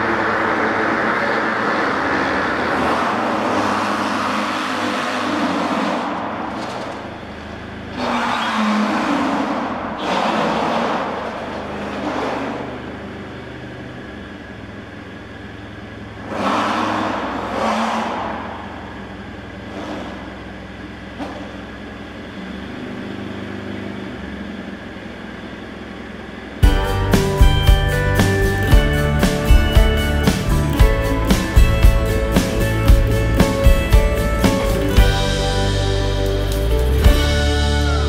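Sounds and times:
low car engine hum: 0:00.0 - 0:38.0.

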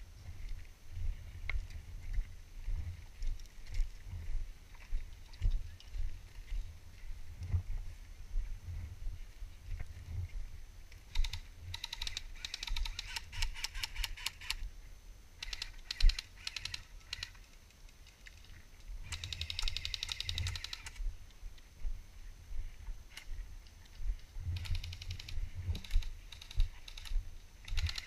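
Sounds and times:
airsoft rifles firing bursts: 0:11.1 - 0:14.6, 0:15.4 - 0:17.4, 0:19.1 - 0:21.0, 0:27.7 - 0:28.0.

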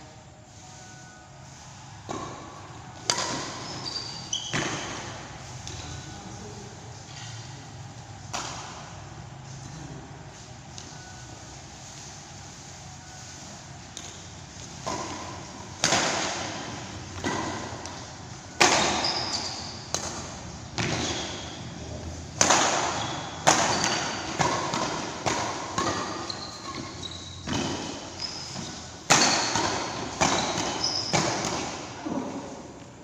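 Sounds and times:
rackets hitting shuttlecock: 0:02.0 - 0:03.8, 0:08.3 - 0:08.9, 0:13.9 - 0:21.6, 0:22.4 - 0:32.3
shoe squeaks: 0:03.2 - 0:06.1, 0:18.6 - 0:20.0, 0:20.9 - 0:21.8, 0:22.9 - 0:24.6, 0:25.7 - 0:31.5.

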